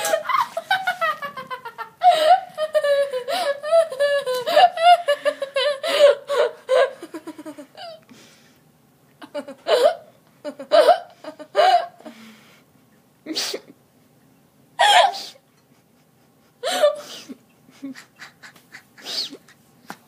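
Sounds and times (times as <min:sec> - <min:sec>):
young woman laughing: 0:00.0 - 0:08.0, 0:09.2 - 0:12.1, 0:14.8 - 0:19.7.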